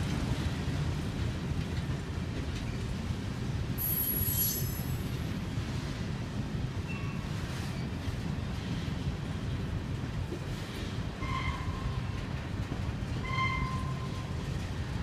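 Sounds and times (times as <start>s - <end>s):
freight train wheels rumbling: 0.0s - 15.0s.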